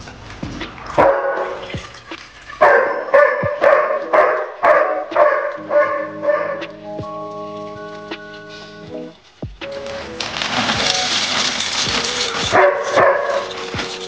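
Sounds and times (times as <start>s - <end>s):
background music with held notes: 0.0s - 14.0s
dog barking: 1.0s - 1.8s, 2.6s - 6.8s, 12.5s - 13.7s
water pouring into a pot: 1.2s - 2.6s.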